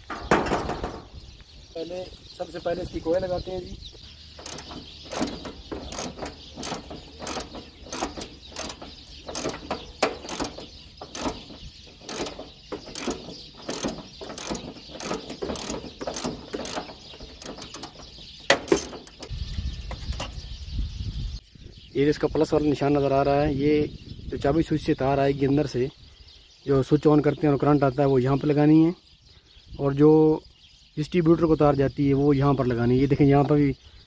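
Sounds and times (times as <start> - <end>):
ratchet wrench clicking: 4.4 - 5.3, 5.9 - 9.6, 10.2 - 11.3, 12.9 - 16.8.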